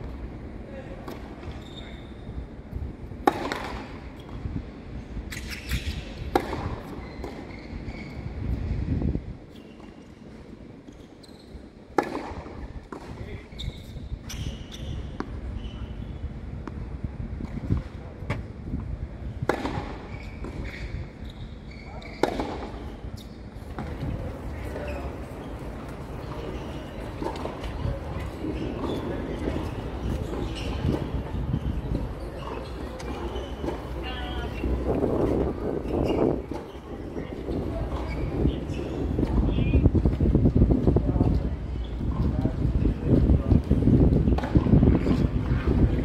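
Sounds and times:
tennis rackets hitting balls: 3.2 - 4.3, 5.3 - 7.4, 11.9 - 13.2, 19.4 - 20.8, 22.0 - 22.8, 23.7 - 38.4
tennis balls bouncing: 3.2 - 4.4, 5.3 - 7.5, 11.9 - 13.2, 19.4 - 20.8, 22.0 - 41.4.

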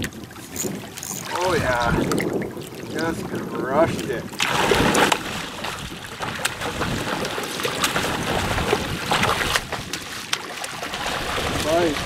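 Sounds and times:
lapping water: 0.0 - 12.0
wind on microphone: 0.0 - 12.0
fish splashing at surface: 4.4 - 12.0.

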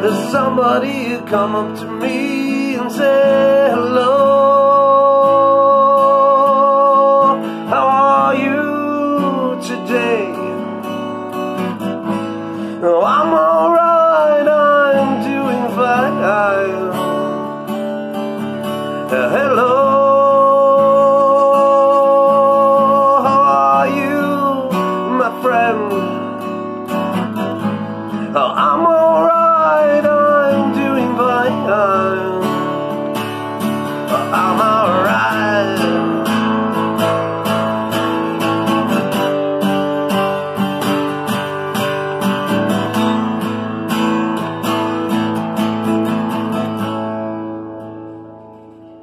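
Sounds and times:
person singing wordlessly: 0.0 - 10.9, 12.7 - 26.8, 27.5 - 39.2
acoustic guitar strumming: 0.0 - 49.0.

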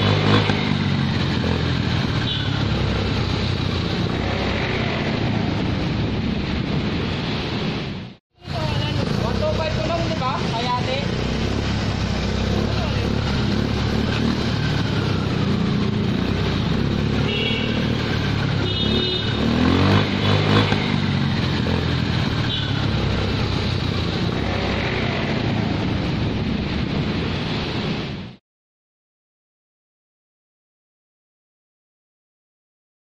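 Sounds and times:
scooter engine revving: 0.0 - 6.7, 8.5 - 27.0.

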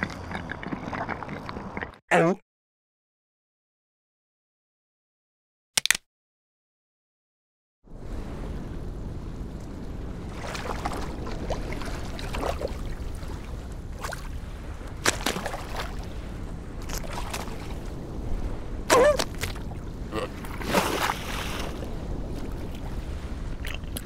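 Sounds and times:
cartoon seal vocal sound: 2.1 - 2.4
steady wind: 7.8 - 24.0
sea over ice: 7.9 - 24.0.

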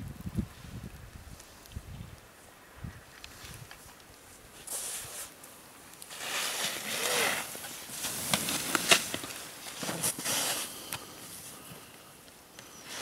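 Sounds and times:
skis scraping across snow: 4.5 - 5.4, 6.1 - 11.7.

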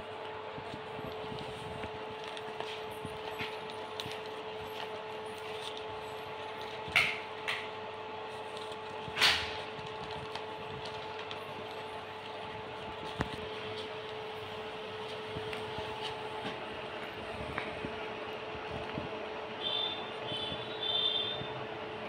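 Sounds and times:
parrot nibbling paper: 0.0 - 16.9
steady hum: 0.0 - 22.0
paper rustling: 0.1 - 7.4, 8.2 - 17.8.

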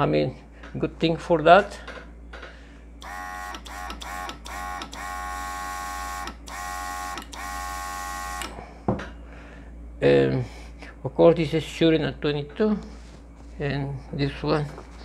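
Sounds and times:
compressor motor whine: 3.0 - 8.6.

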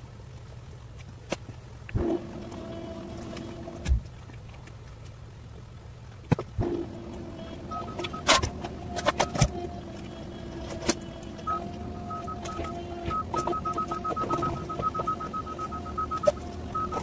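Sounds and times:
excavator machine hum: 1.9 - 17.0
rapid electronic beeping: 7.3 - 17.0.

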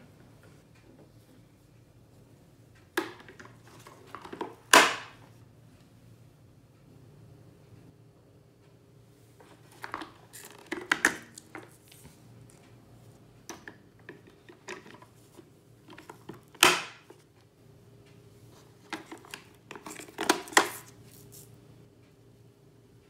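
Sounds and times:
plastic parts clicking and scraping: 9.4 - 12.7, 13.4 - 17.3, 18.6 - 21.5.

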